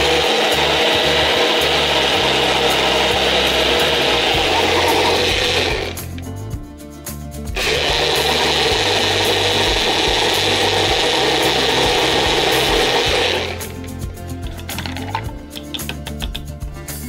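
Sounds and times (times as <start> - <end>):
blender whirring: 0.0 - 6.2, 7.5 - 13.9.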